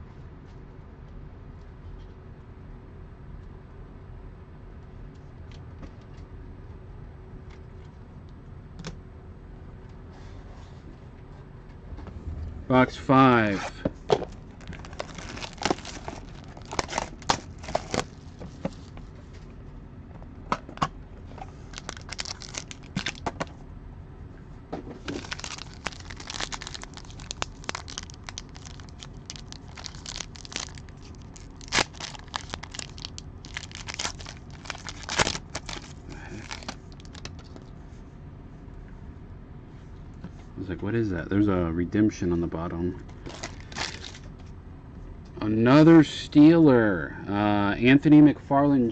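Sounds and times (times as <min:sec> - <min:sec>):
plastic wrapping tearing and crinkling: 0:14.5 - 0:18.9, 0:21.6 - 0:23.4, 0:25.0 - 0:37.7, 0:43.2 - 0:44.3.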